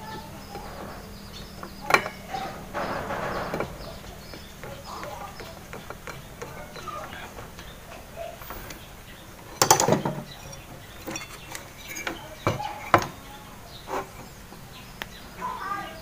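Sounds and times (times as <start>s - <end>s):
sharp knocks: 0.0s - 7.6s
metallic rattling clatter: 0.0s - 14.7s.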